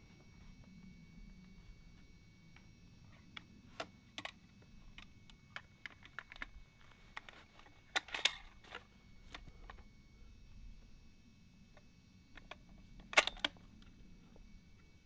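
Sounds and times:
rifle clicks and rattles: 0:03.3 - 0:09.8, 0:12.3 - 0:13.9.

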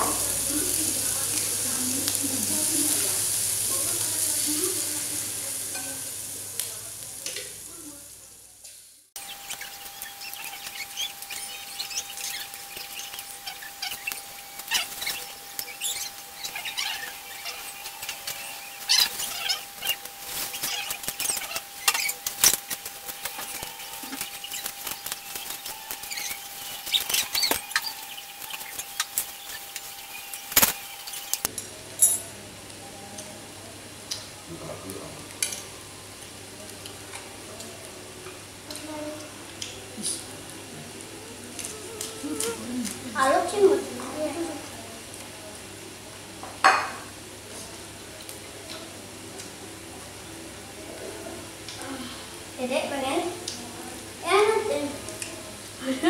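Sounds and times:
snails sizzling on a grill pan: 0:00.0 - 0:56.0
clinks of food preparation: 0:31.4 - 0:32.4.

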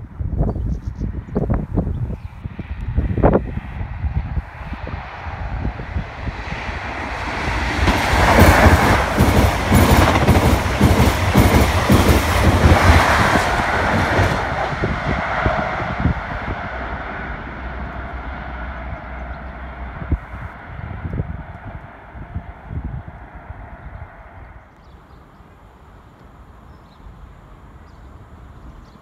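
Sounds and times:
train rumble passing: 0:01.1 - 0:26.5
train wheels clattering over rail joints: 0:07.7 - 0:14.6.

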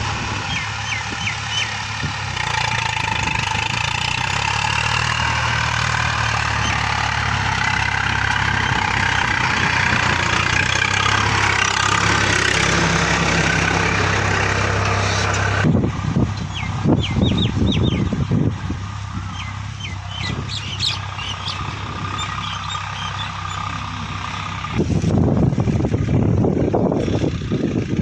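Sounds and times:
tractor diesel engine running: 0:00.0 - 0:28.0
bird chirps: 0:00.4 - 0:01.8, 0:16.4 - 0:18.2, 0:19.2 - 0:23.7.

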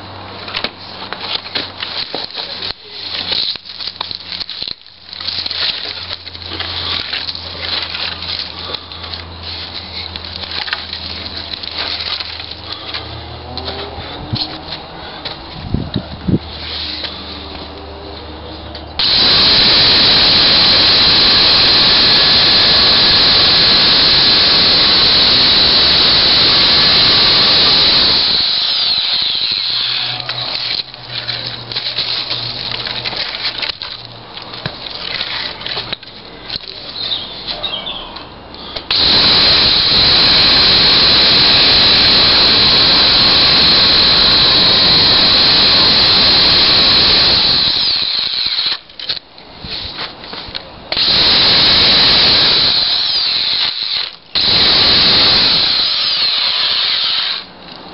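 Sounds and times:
electric chainsaw cutting log: 0:19.0 - 0:30.8, 0:38.8 - 0:48.9, 0:50.9 - 0:57.6.

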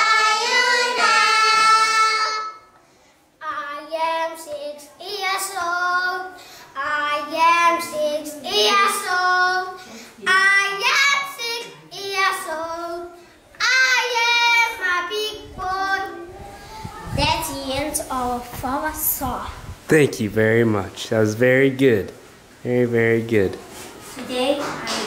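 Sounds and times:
children singing: 0:00.0 - 0:02.7.

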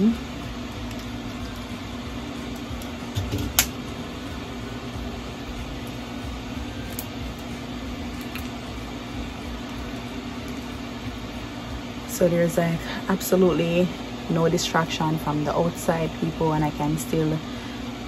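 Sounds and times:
electric fan humming: 0:00.0 - 0:18.0.

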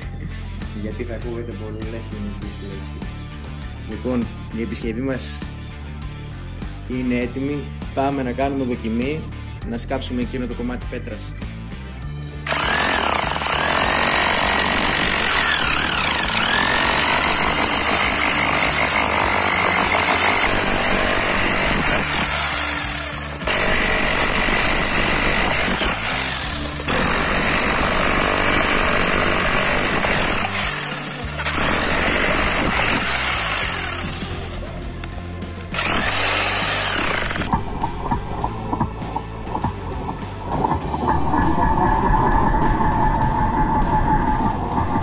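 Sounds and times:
rotary hammer chiseling stone: 0:12.5 - 0:34.6, 0:35.6 - 0:37.6.

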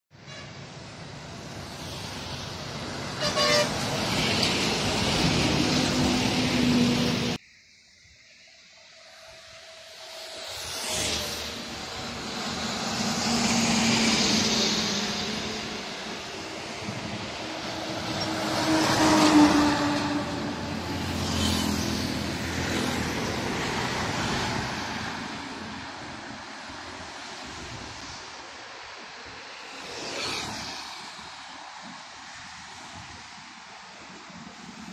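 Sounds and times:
highway traffic road noise: 0:00.1 - 0:07.4, 0:08.4 - 0:34.9
vehicle horn: 0:00.2 - 0:00.6, 0:03.2 - 0:03.9
truck passing by: 0:09.9 - 0:25.8.

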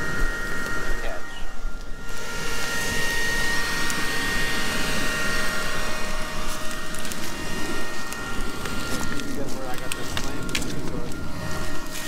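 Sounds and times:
leaf blower motor whine: 0:00.0 - 0:12.0.

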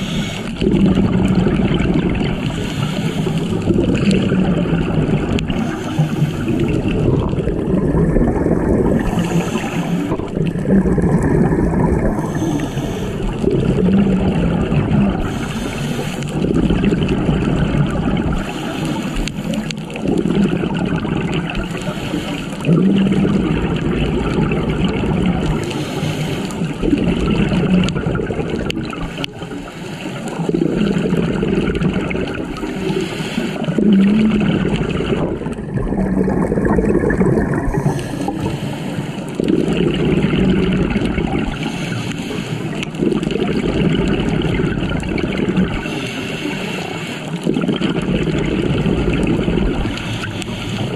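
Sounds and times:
underwater regulator bubbling: 0:00.0 - 0:50.9.

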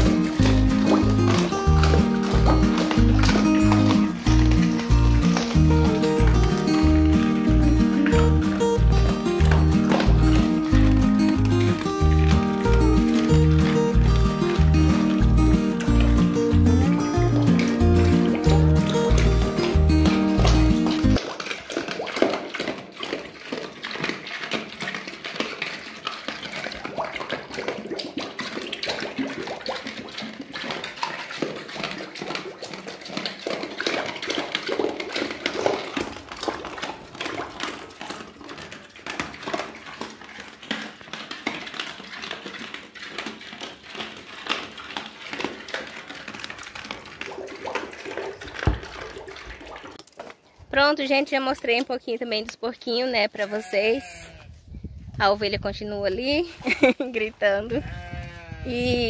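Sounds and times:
pigs slurping and chomping slop: 0:00.0 - 0:59.0.

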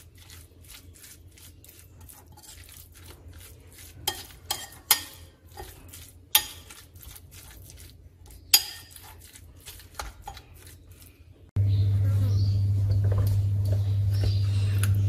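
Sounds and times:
spoon stirring minced meat: 0:00.0 - 0:11.5
spoon clinking against bowl: 0:04.0 - 0:06.8, 0:08.5 - 0:09.1.

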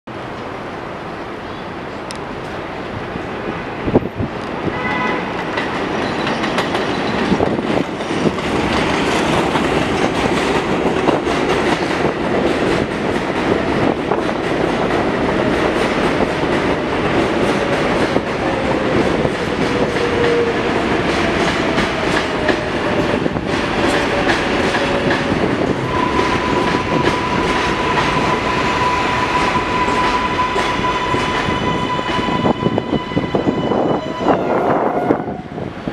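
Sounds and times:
train wheels rumbling on rails: 0:02.1 - 0:35.9
wheels clacking over rail joints: 0:05.2 - 0:32.2
train brakes whining: 0:18.4 - 0:35.7.

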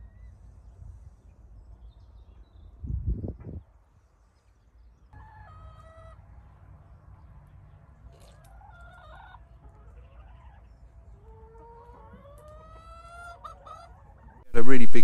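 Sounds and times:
hens clucking and calling: 0:08.4 - 0:15.0.

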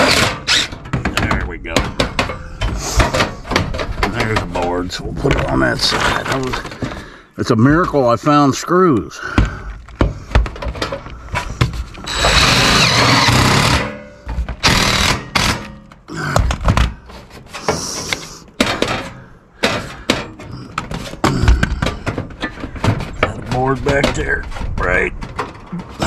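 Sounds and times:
impact driver hammering screw: 0:12.1 - 0:14.0, 0:14.6 - 0:15.7
clicks and knocks of handling: 0:15.6 - 0:26.0.

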